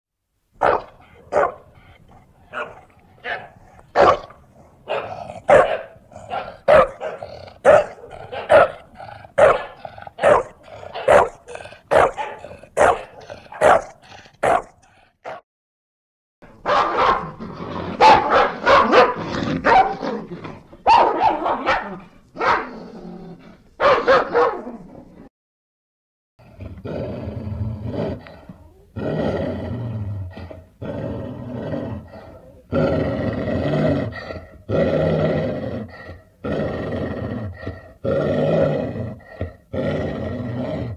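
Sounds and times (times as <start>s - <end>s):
dogs barking: 0.6s - 1.8s, 2.5s - 15.4s, 16.6s - 17.4s, 18.0s - 20.0s, 20.8s - 22.7s, 23.8s - 24.6s.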